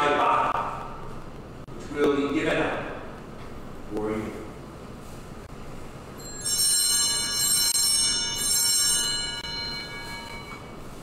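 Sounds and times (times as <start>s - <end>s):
brass bells ringing: 6.2s - 11.0s.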